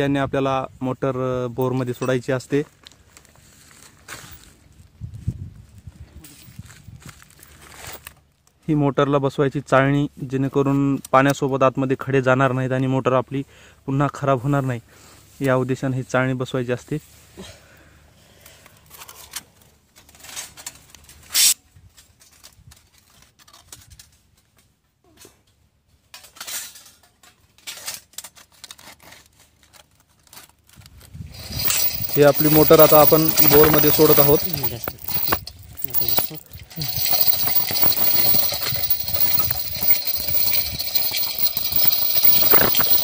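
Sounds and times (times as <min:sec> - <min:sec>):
rustling: 0:28.6 - 0:43.0
chain block rattling metallic clicks: 0:31.3 - 0:43.0.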